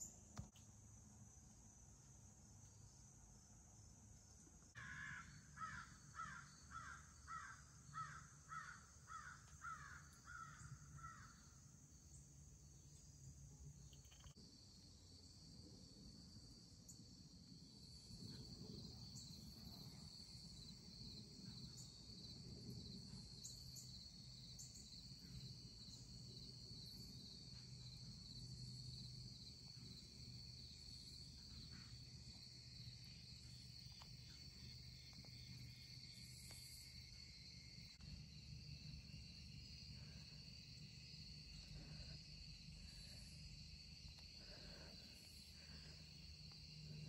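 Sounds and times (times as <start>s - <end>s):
insects chirring: 2.4s - 15.5s, 16.1s - 47.0s
faint ticks: 13.9s - 14.4s.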